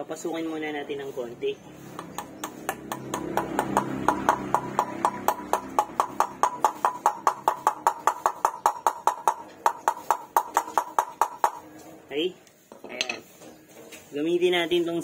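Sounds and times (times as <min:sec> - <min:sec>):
hammer tapping metal: 0:01.9 - 0:11.7.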